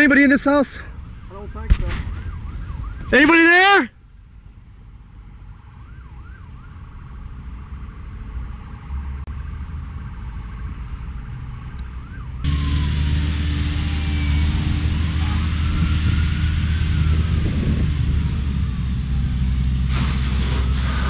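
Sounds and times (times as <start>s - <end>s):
distant sirens wailing: 0.0s - 3.9s, 5.4s - 8.2s, 9.8s - 21.0s
low rumble: 12.5s - 20.0s.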